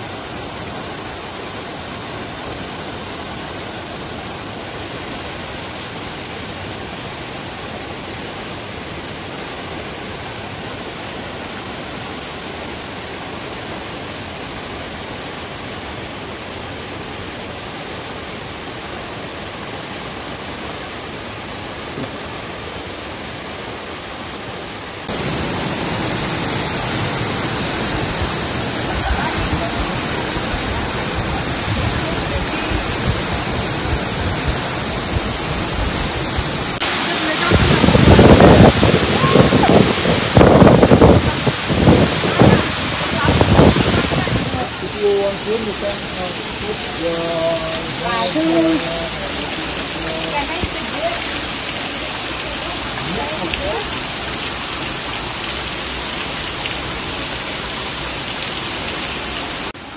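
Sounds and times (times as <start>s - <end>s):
waterfall roaring: 0.0s - 59.9s.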